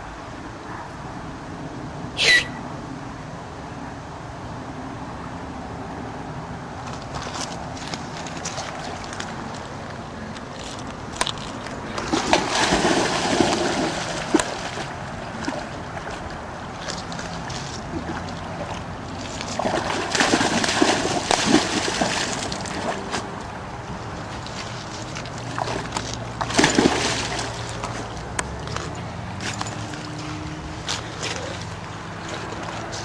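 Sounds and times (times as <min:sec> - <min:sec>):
dog splashing in water: 0:11.4 - 0:23.4, 0:24.3 - 0:33.0.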